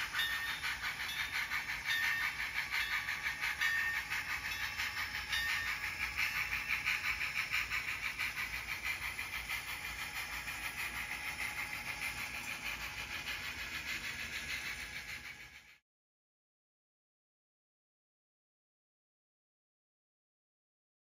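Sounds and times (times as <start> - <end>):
model train wheels clicking: 0.0 - 15.8.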